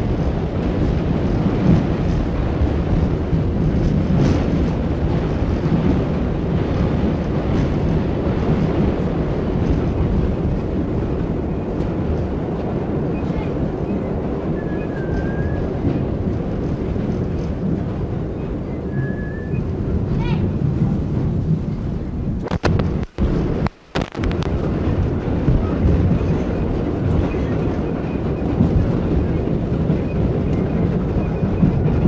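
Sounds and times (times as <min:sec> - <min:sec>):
subway train rumbling: 0:00.0 - 0:32.0.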